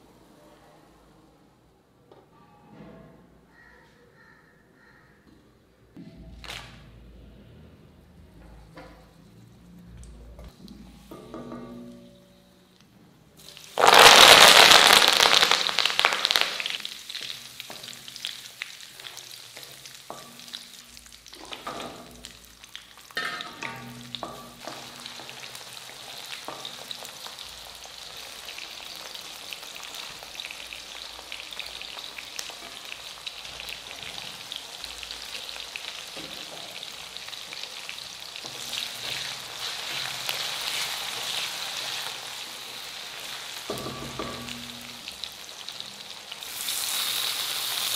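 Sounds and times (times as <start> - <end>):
frying sizzle: 13.3 - 47.9
leaves spluttering in hot oil: 13.4 - 47.9.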